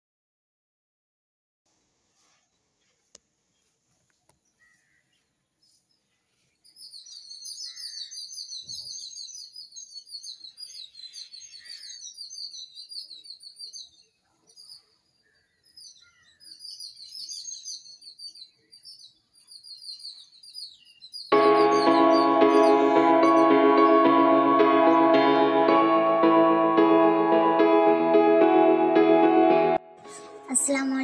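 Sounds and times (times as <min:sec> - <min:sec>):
small birds twittering: 0:02.2 - 0:23.4.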